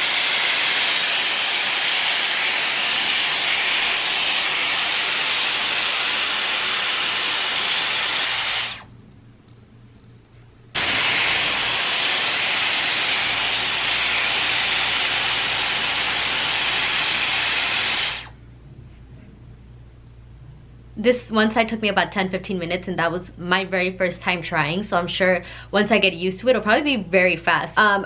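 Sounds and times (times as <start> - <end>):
hair styler blowing air: 0.0 - 8.9, 10.8 - 18.4.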